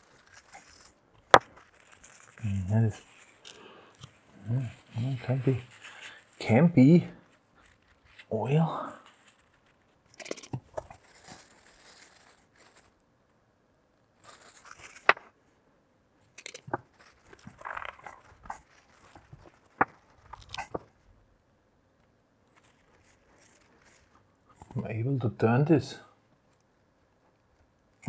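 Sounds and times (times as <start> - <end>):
paper towels rustling and crumpling: 0.0 - 10.0, 10.6 - 13.0, 14.2 - 15.0.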